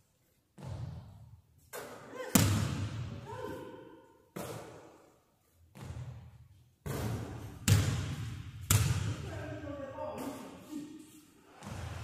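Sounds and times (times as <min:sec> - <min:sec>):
basketball bouncing on wooden floor: 0:00.6 - 0:03.0, 0:05.7 - 0:09.2.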